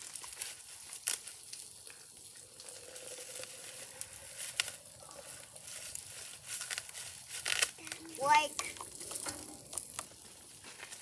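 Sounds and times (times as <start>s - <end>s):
water pouring into glass: 2.3s - 5.0s.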